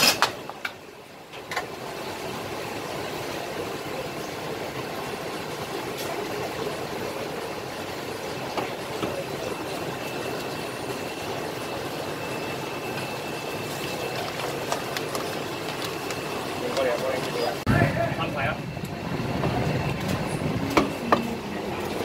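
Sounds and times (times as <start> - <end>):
busy kitchen din: 0.0 - 22.0
faint high whine: 17.4 - 22.0.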